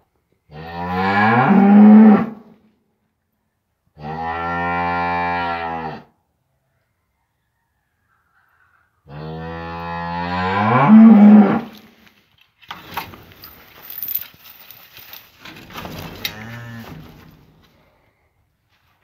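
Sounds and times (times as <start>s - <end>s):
cow mooing: 0.5s - 2.4s, 4.0s - 6.1s, 9.1s - 11.8s, 16.3s - 17.0s.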